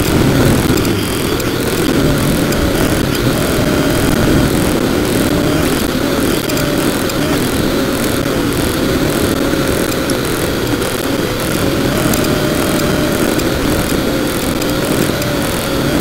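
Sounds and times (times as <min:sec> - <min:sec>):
drone propellers buzzing: 0:00.0 - 0:16.0.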